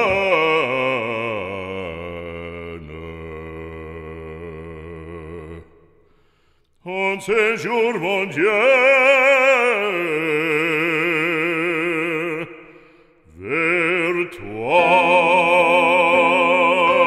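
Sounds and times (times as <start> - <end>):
operatic voice singing: 0.0 - 5.8, 6.8 - 17.0.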